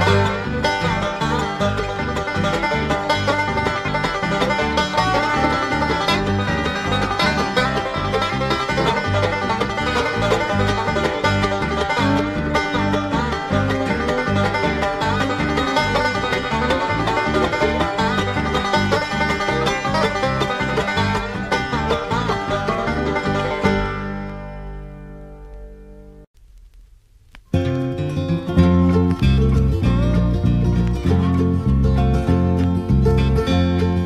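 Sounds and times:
steady bass beat: 0:00.0 - 0:24.0
banjo picking: 0:00.0 - 0:26.2, 0:27.5 - 0:34.0.

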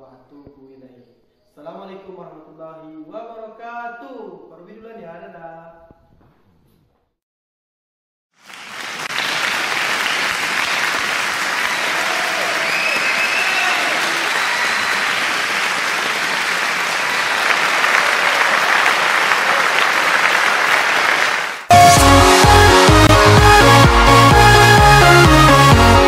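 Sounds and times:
crowd applauding: 0:08.4 - 0:26.0.

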